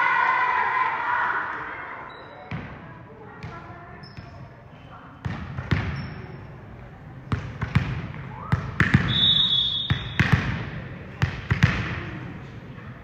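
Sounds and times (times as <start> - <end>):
volleyball bouncing on gym floor: 2.5 - 2.8, 3.4 - 4.5, 5.2 - 6.4, 7.2 - 12.2.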